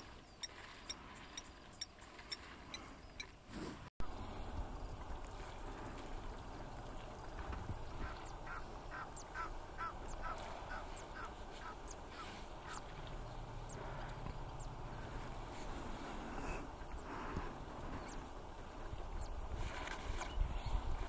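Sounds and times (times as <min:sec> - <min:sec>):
low background rumble: 0:04.1 - 0:19.5.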